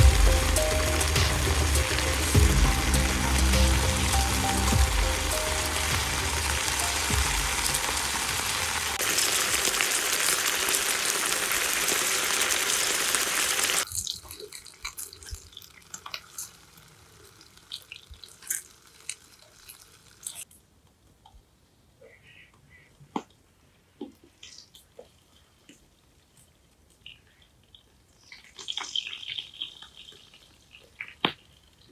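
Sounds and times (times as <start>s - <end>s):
meat sizzling in a frying pan: 0.0s - 20.4s.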